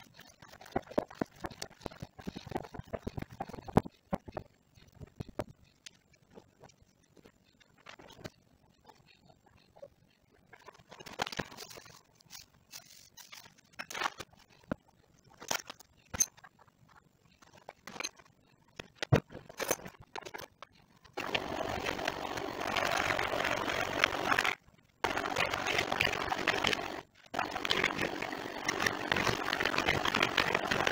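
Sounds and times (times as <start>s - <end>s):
electric hand mixer churning: 21.2s - 30.9s.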